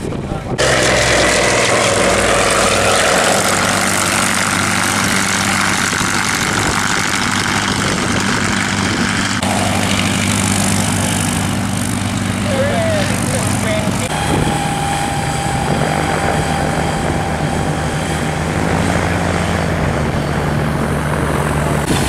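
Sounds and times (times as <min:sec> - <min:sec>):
radial aircraft engines at full power: 0:00.0 - 0:22.0
propeller engine idling: 0:00.2 - 0:22.0.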